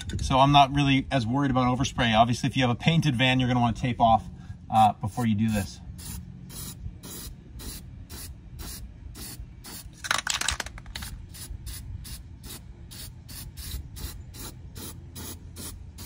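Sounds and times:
spray paint can spraying: 0:06.0 - 0:16.0.

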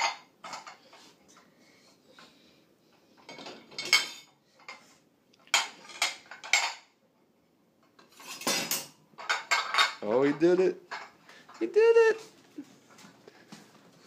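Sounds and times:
ceramic plates clinking: 0:03.2 - 0:04.8, 0:05.5 - 0:06.9, 0:08.0 - 0:11.7.

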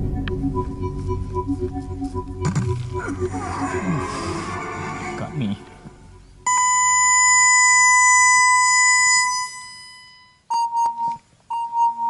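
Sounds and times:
long steady electronic beep: 0:06.1 - 0:12.0
short electronic beeps: 0:06.5 - 0:12.0.

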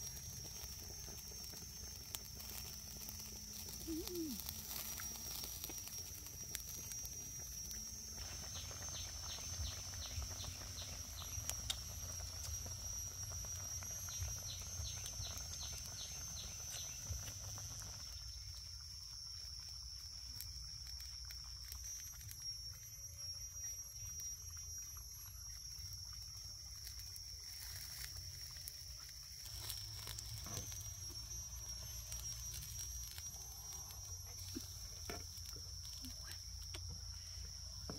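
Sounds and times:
wood fire crackling: 0:00.0 - 0:18.9, 0:25.9 - 0:37.9
high-pitched insect drone: 0:00.0 - 0:37.9
short chirps: 0:03.7 - 0:05.2.

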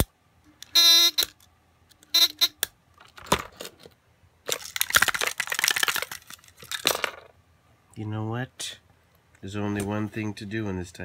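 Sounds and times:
electronic game buzzer: 0:00.8 - 0:01.3, 0:02.1 - 0:02.6.

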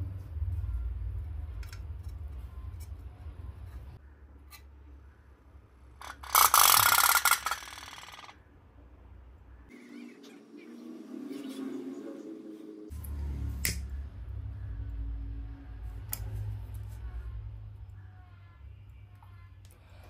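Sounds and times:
toy steam boat putter: 0:06.0 - 0:08.3.

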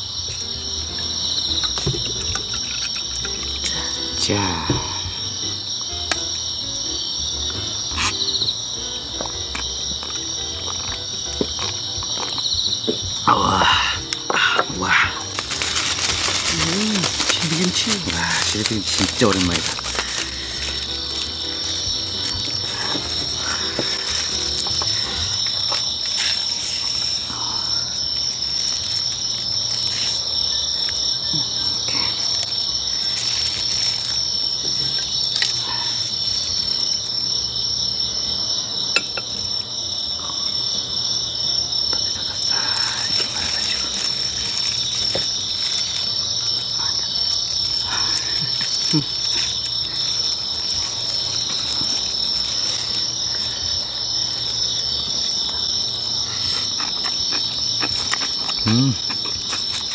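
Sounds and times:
crickets chirping: 0:00.0 - 0:59.9
plastic gloves rustling: 0:14.8 - 0:27.3, 0:28.2 - 0:30.6, 0:32.0 - 0:35.5, 0:42.4 - 0:55.4.

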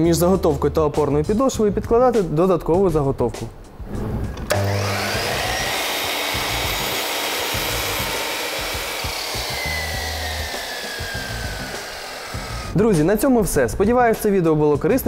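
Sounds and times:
miter saw cutting wood: 0:04.5 - 0:12.8.

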